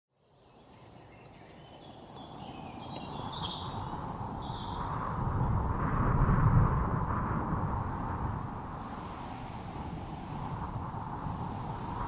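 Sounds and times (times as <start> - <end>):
birds chirping: 0.3 - 5.2.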